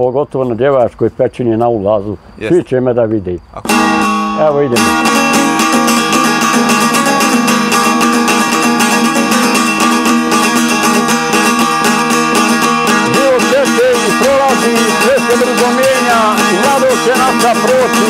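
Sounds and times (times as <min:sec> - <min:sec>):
long-necked lute strumming: 0:03.6 - 0:18.0.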